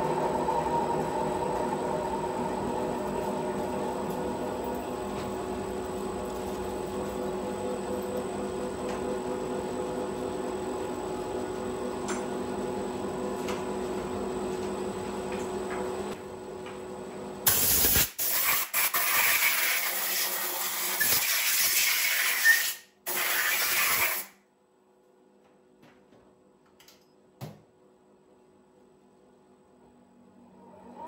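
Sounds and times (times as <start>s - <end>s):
machine hum with held tones: 0.0s - 17.2s, 28.0s - 31.0s.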